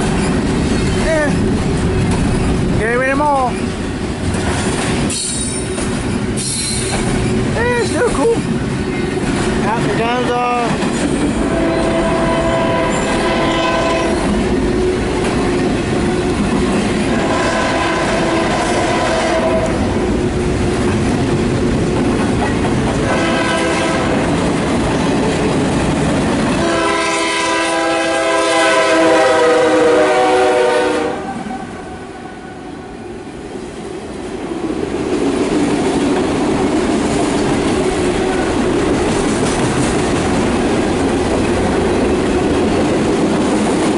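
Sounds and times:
train rumble and wheel clatter: 0:00.0 - 0:43.9
locomotive air horn blasts: 0:11.4 - 0:14.2, 0:17.1 - 0:19.8, 0:23.0 - 0:24.2, 0:26.6 - 0:32.6.

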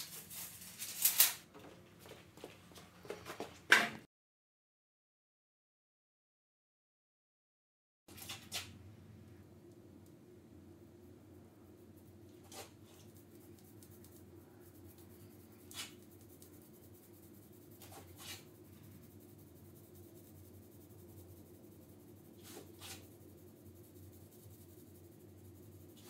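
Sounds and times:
paint roller scratchy strokes: 0:12.4 - 0:26.0.

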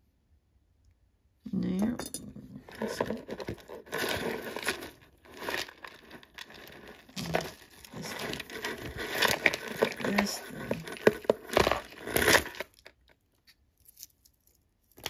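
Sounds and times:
plastic bag crinkling: 0:02.7 - 0:13.2.

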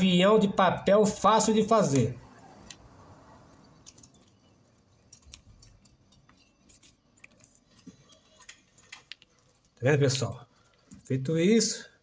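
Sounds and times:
paper crinkling while folded: 0:03.8 - 0:11.2.

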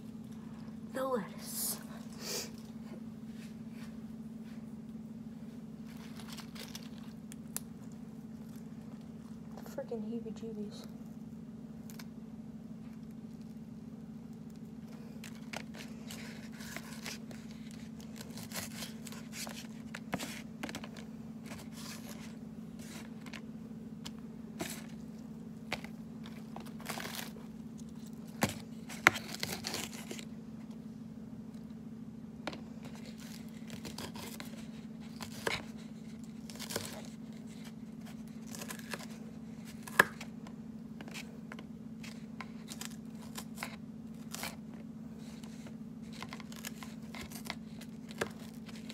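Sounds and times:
steady low hum: 0:00.0 - 0:48.9
lettuce leaves tearing: 0:15.2 - 0:20.4, 0:25.8 - 0:30.3, 0:32.8 - 0:40.3, 0:42.1 - 0:44.6.

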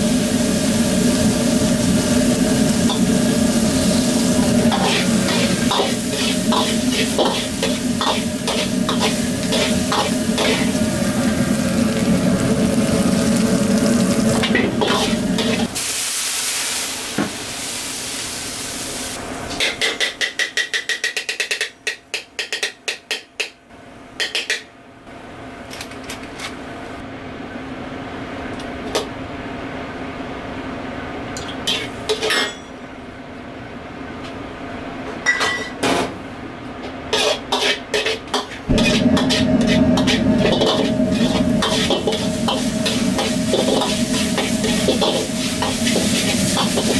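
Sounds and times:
meat sizzling in a wok: 0:00.0 - 0:19.2, 0:37.2 - 0:46.9
metal ladle scraping a wok: 0:04.6 - 0:10.8, 0:37.2 - 0:46.9.

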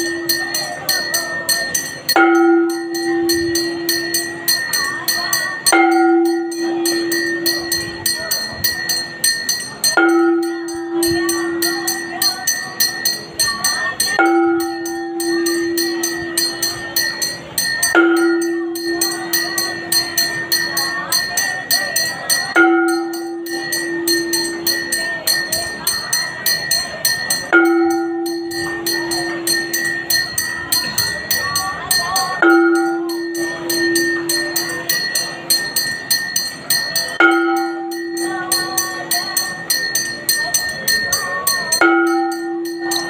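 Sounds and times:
bells ringing fast: 0:00.0 - 0:43.0
voices singing: 0:00.0 - 0:43.0.

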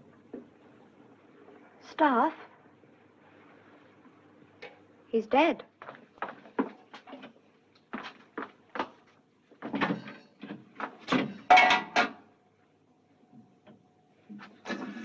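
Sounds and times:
faint steady hum: 0:00.0 - 0:15.0
metal bedpans clanking: 0:09.6 - 0:12.2.

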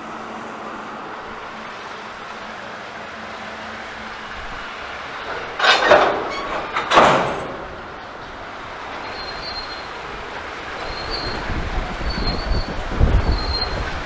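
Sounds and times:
freight train rolling on track: 0:00.0 - 0:14.0
loud metallic bursts: 0:04.2 - 0:10.0
high wheel squeal: 0:05.1 - 0:14.0.

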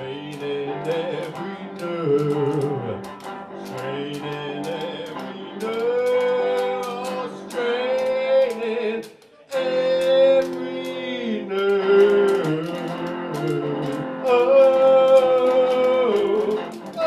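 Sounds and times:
electric guitar: 0:00.0 - 0:17.0
man singing long held notes: 0:00.0 - 0:17.0
washboard rhythmic clicks: 0:00.0 - 0:17.0.

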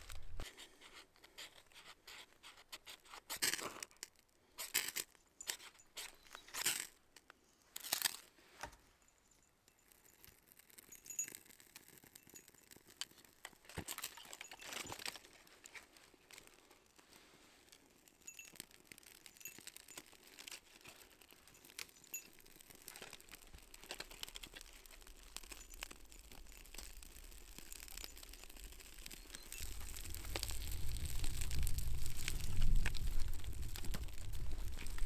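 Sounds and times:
burning bark crackling: 0:00.0 - 0:00.8, 0:09.8 - 0:35.0.

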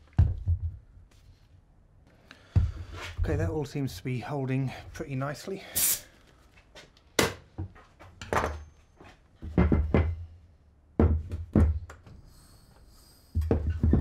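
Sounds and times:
handling knocks and clunks: 0:07.2 - 0:10.3, 0:11.0 - 0:12.2, 0:13.4 - 0:14.0.

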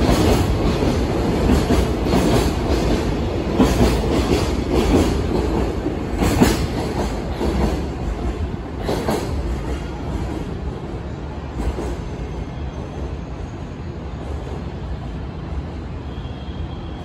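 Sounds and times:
wheels clacking on rail joints: 0:00.0 - 0:10.6
freight train passing: 0:00.0 - 0:17.0.

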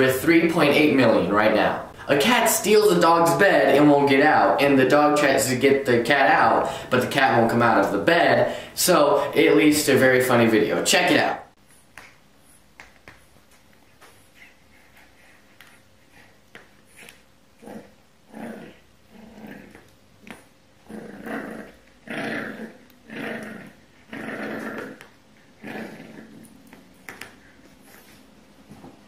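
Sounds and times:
puppy growling: 0:16.9 - 0:28.2.

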